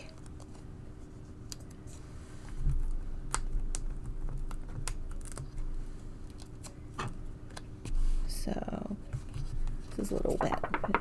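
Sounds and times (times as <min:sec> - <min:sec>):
paper pieces clicking and tapping: 0:10.1 - 0:11.0.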